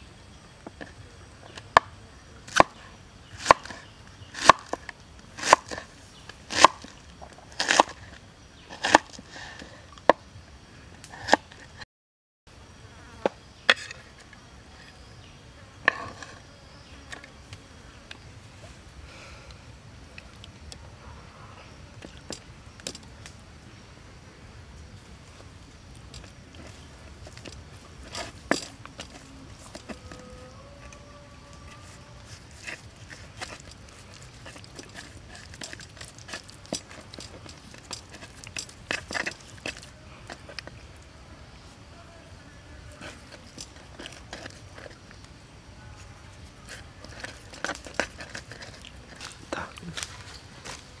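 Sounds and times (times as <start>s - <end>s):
faint insect buzzing: 12.5s - 51.0s.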